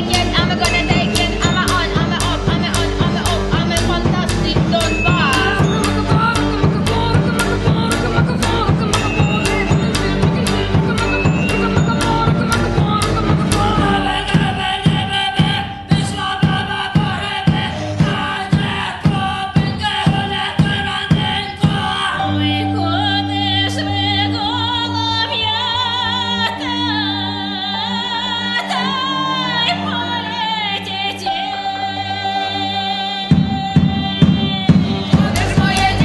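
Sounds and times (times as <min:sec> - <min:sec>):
cello: 0:00.0 - 0:36.0
women singing: 0:00.0 - 0:36.0
sharp beat: 0:00.5 - 0:22.0.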